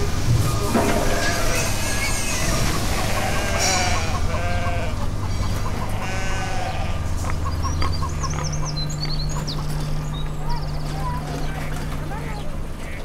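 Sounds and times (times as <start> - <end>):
low hum: 0.0 - 13.0
livestock bleating: 0.9 - 2.2, 2.8 - 7.1
bird chirps: 7.3 - 12.6.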